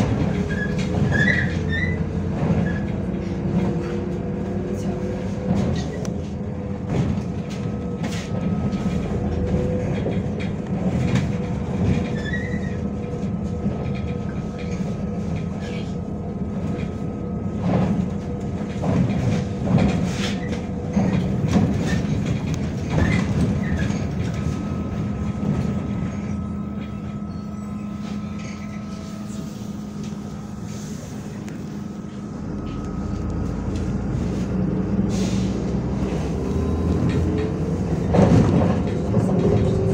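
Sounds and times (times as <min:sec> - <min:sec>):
bus body knocks and rattles: 0:00.0 - 0:27.2, 0:36.8 - 0:39.9
bus engine and road rumble: 0:00.0 - 0:39.9.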